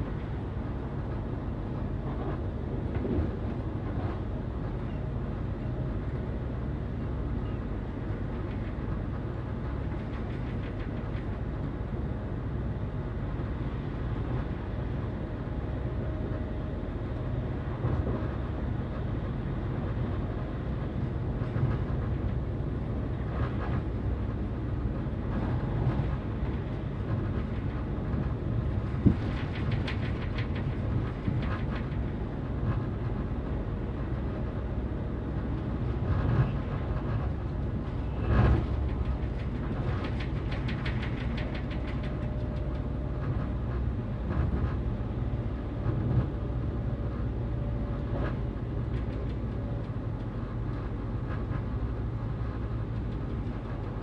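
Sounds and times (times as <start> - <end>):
train rumbling inside carriage: 0.0 - 54.0
rapid clicking of wheels: 38.3 - 43.4.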